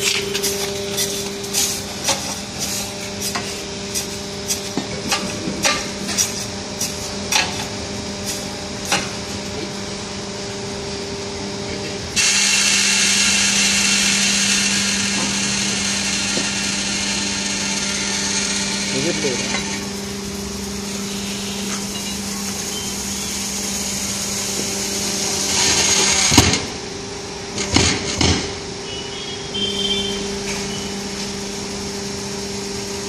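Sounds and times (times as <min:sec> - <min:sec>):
baling machine motor humming: 0:00.0 - 0:27.6
machine hiss: 0:12.2 - 0:26.6.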